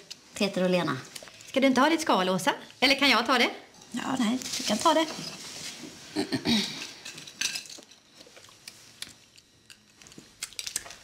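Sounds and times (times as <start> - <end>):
crayfish shells cracking: 9.7 - 11.0.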